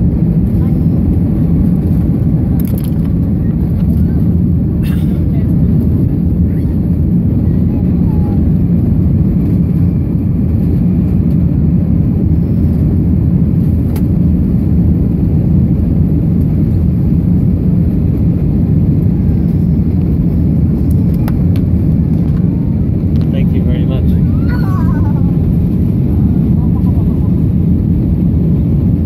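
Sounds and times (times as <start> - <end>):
jet engines and rushing air: 0.0 - 29.0.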